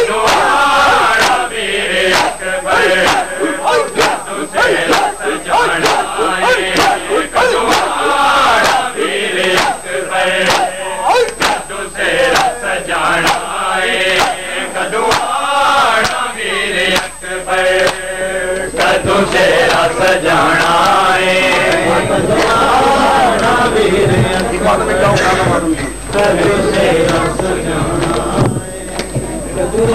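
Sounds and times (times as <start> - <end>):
men chanting a lament: 0.0 - 29.9
hands slapping chests: 3.0 - 9.8, 10.4 - 11.6, 12.3 - 12.6, 15.1 - 15.4, 16.0 - 16.3, 16.9 - 17.2, 17.8 - 22.6.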